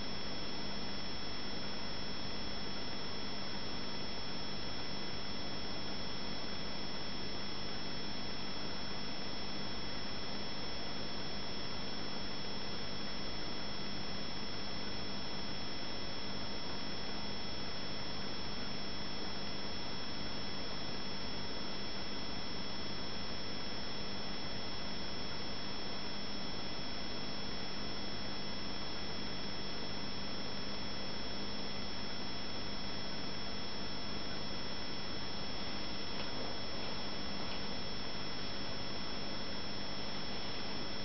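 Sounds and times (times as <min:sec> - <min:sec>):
steady equipment hum: 0:13.0 - 0:41.0.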